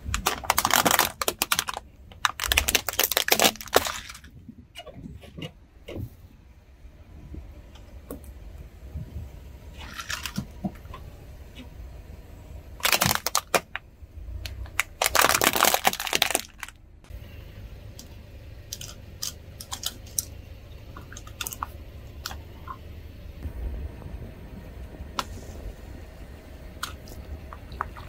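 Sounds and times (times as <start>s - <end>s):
objects crunching under a tyre: 0.0s - 6.1s, 12.8s - 16.8s
steady low rumble: 0.0s - 28.0s.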